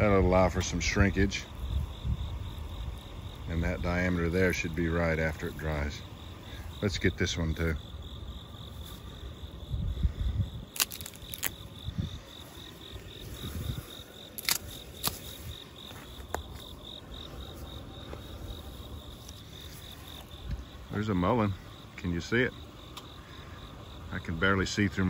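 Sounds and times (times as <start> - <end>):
insects chirping: 0.0 - 25.0
stalks cracking: 10.7 - 11.7, 14.3 - 16.7.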